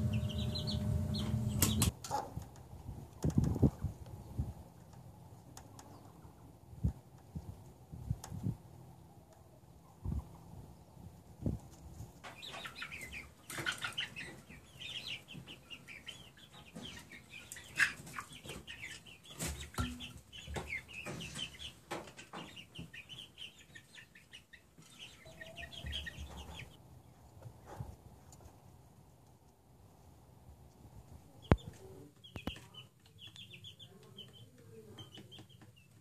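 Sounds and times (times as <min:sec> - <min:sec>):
young chickens peeping and clucking: 0:00.0 - 0:36.0
sharp clicks and knocks: 0:01.2 - 0:03.6.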